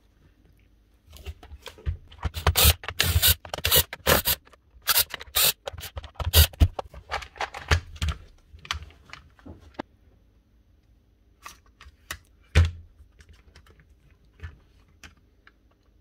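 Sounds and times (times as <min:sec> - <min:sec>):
tool parts scraping and clicking: 0:02.2 - 0:07.7.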